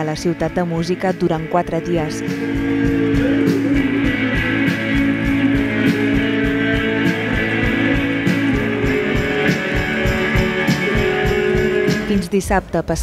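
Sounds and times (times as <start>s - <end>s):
rock band playing live: 2.2s - 12.1s.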